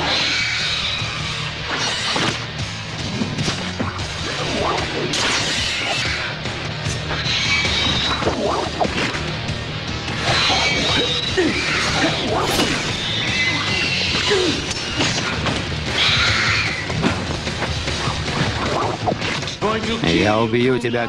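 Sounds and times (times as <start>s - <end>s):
punch and kick impacts: 12.4s - 13.2s.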